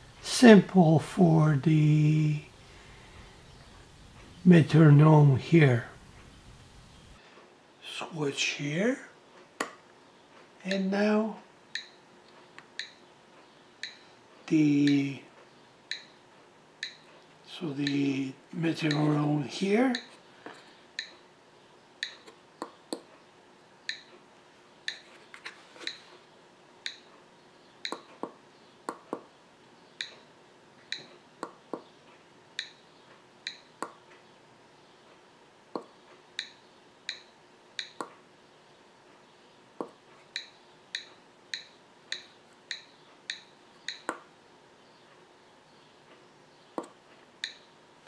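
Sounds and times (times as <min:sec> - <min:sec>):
metronome ticking: 0:10.7 - 0:11.0, 0:11.7 - 0:12.0, 0:12.8 - 0:13.0, 0:13.8 - 0:14.1, 0:14.8 - 0:15.2, 0:15.9 - 0:16.2, 0:16.8 - 0:17.1, 0:18.8 - 0:19.2, 0:19.8 - 0:20.2, 0:21.0 - 0:21.2, 0:22.0 - 0:22.2, 0:23.9 - 0:24.1, 0:26.8 - 0:27.1, 0:32.6 - 0:34.0, 0:35.8 - 0:38.1, 0:39.8 - 0:44.2, 0:46.8 - 0:47.7.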